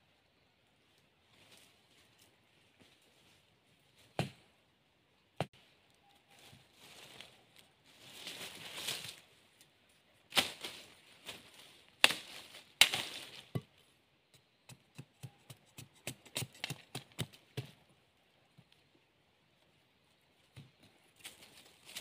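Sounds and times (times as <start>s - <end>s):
dry leaves rustling: 6.2s - 13.6s, 21.2s - 22.0s
machete chopping bamboo: 12.0s - 13.7s, 14.7s - 17.8s.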